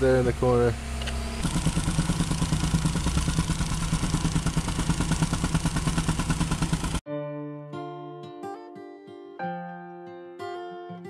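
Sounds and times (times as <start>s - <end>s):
soil compactor pounding: 0.0s - 7.0s
acoustic guitar music: 7.2s - 11.0s.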